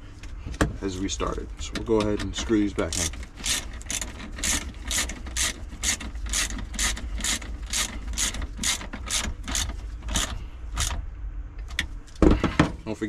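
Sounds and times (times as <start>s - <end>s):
hand ratchet clicking: 1.9s - 11.0s.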